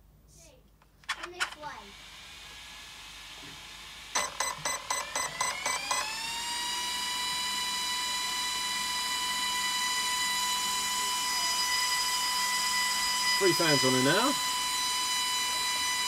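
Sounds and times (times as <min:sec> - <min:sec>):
electric cooling fans whining: 0:10.2 - 0:16.0.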